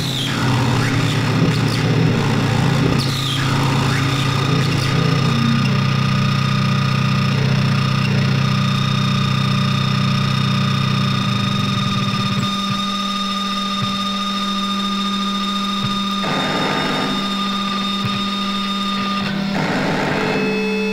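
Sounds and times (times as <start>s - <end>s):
steady low hum: 16.2s - 20.9s.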